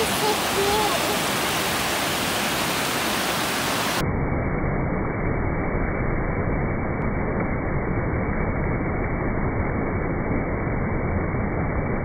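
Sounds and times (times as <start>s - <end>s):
creek rushing over boulders: 0.0s - 4.0s.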